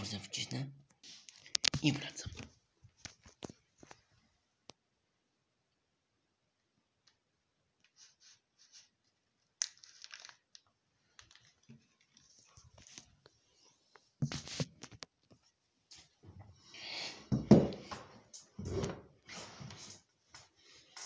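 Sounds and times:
paper rustling and crinkling: 9.6 - 13.3.

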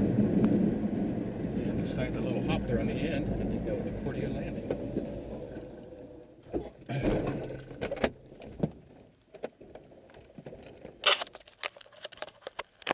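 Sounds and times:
rustling clatter: 4.5 - 12.9.

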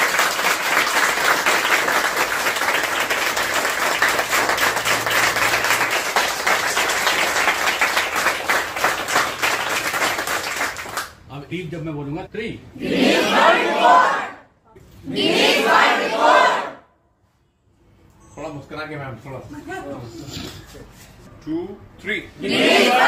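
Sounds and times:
crowd applauding: 0.0 - 11.2.

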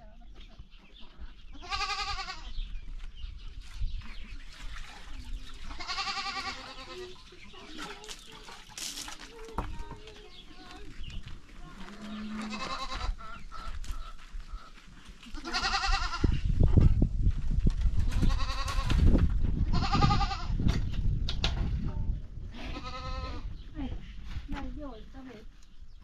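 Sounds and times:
sheep bleating: 12.3 - 13.2, 15.4 - 16.2.

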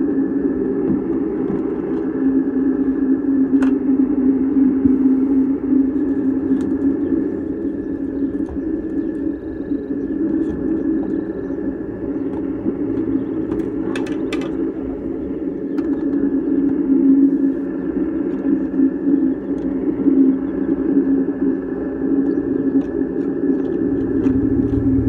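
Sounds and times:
low hum: 0.0 - 25.0.

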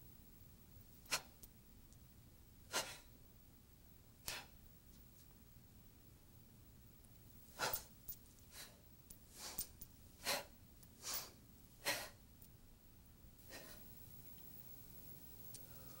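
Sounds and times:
short forceful breaths: 7.5 - 7.9, 13.4 - 13.9.

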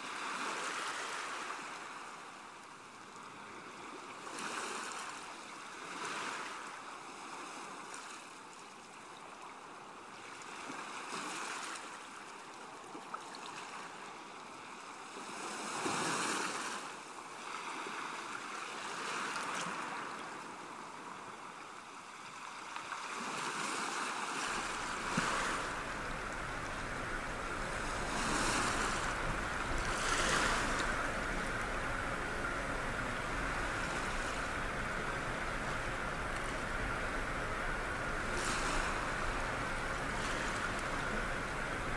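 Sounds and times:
sea waves washing: 22.9 - 41.9
low rumble: 24.5 - 41.9.

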